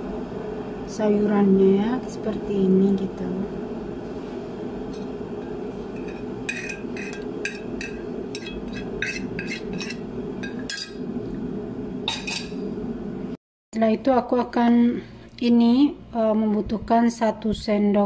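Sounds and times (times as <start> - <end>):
steady low hum: 0.0 - 18.0
crockery and cutlery clinking: 6.0 - 11.0, 12.1 - 12.6.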